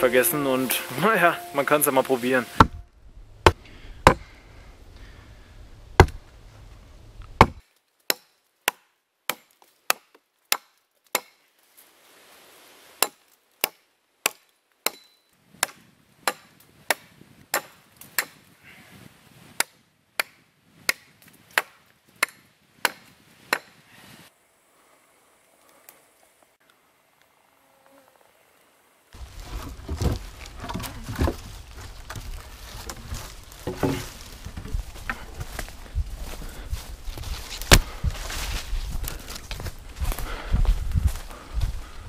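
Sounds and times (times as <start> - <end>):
hatchet chopping wood: 2.6 - 2.8, 3.4 - 4.3, 6.0 - 6.2, 7.4 - 11.4, 13.0 - 18.4, 19.6 - 23.8, 37.6 - 38.0.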